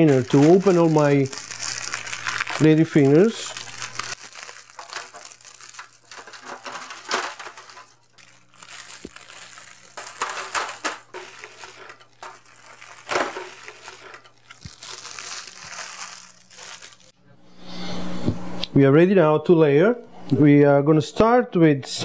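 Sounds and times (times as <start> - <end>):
plastic packaging crinkling: 0.0 - 17.2.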